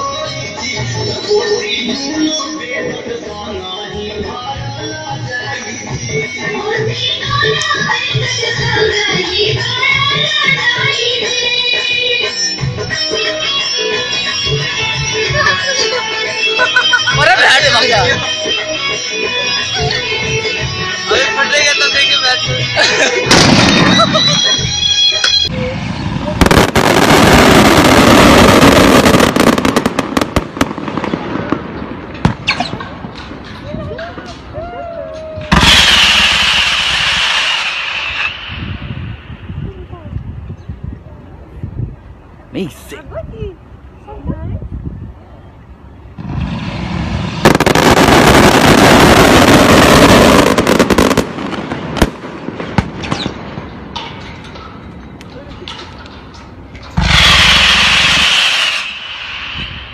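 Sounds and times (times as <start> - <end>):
fireworks launching: 4.8 - 34.8, 35.4 - 39.9, 46.2 - 59.9
sharp firework cracks: 26.2 - 33.5, 35.4 - 39.6, 46.2 - 54.1, 56.9 - 59.9.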